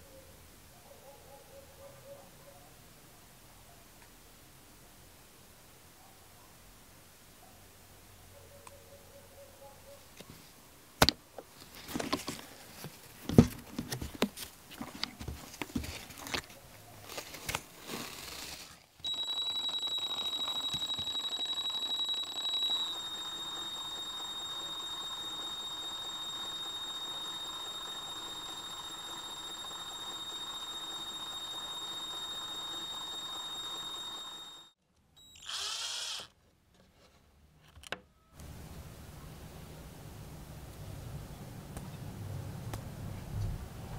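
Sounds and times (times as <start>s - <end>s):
cordless drill whining: 35.2s - 36.3s.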